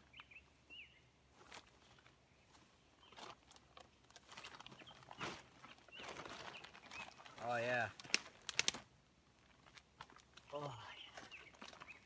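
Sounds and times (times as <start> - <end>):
bird chirp: 0.0 - 1.2, 2.2 - 3.4, 4.6 - 7.6, 10.6 - 12.0
plastic tarp rustling: 3.1 - 8.8.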